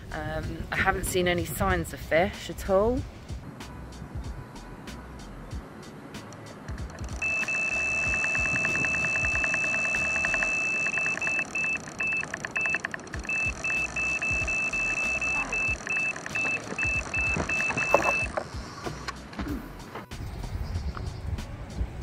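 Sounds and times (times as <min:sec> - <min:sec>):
rapid ticking: 0:06.8 - 0:18.7
bite alarm tone and beeps: 0:07.2 - 0:18.4
knock on alarm: 0:12.1 - 0:18.4.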